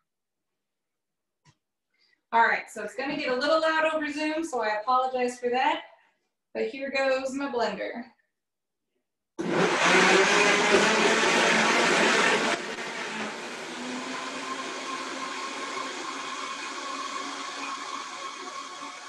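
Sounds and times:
blender running: 0:09.4 - 0:19.0.

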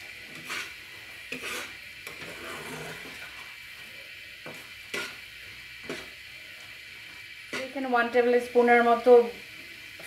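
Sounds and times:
spatula scraping thick gravy: 0:00.2 - 0:03.5, 0:04.6 - 0:05.2.

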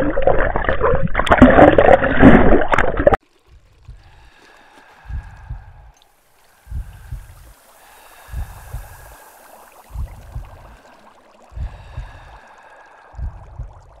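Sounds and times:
underwater bubbling and gurgling: 0:00.0 - 0:14.0
deep double thumps: 0:05.1 - 0:06.0, 0:06.6 - 0:07.5, 0:09.9 - 0:10.8, 0:11.5 - 0:12.4, 0:13.1 - 0:14.0.

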